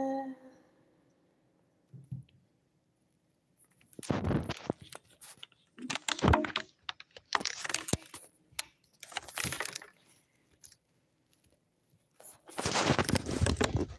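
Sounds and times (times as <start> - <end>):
microphone handling noise: 4.0 - 6.7.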